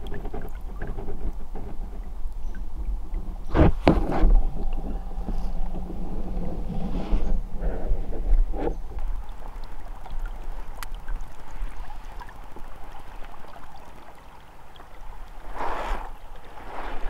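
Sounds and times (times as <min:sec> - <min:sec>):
river water trickling and gurgling: 0:00.0 - 0:17.0
faint clicks: 0:10.7 - 0:11.2
rush of noise: 0:15.4 - 0:17.0.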